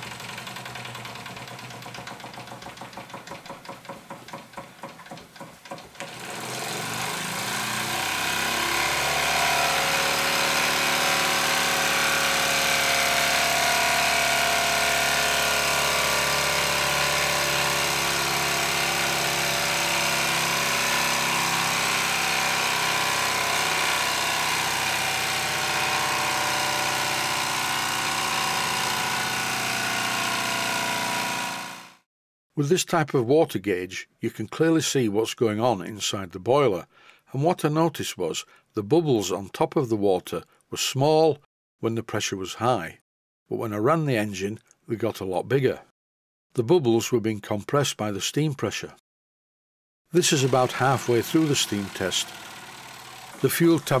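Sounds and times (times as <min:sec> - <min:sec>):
toy steam engine chuffing: 0:00.0 - 0:03.4, 0:50.2 - 0:54.0.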